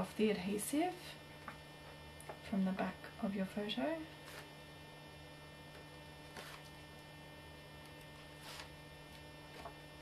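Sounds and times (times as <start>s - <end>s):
electrical mains hum: 0.0s - 10.0s
faint paper rustles: 6.2s - 6.8s, 8.2s - 8.8s.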